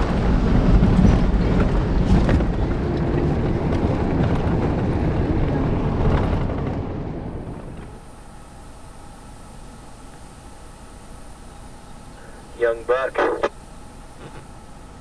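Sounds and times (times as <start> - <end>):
wind noise: 0.0 - 7.9
engine and tyre rumble: 0.0 - 12.0.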